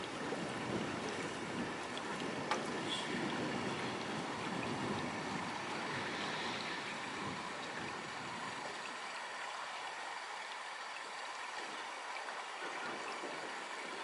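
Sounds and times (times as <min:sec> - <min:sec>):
steady rain falling: 0:00.0 - 0:14.0.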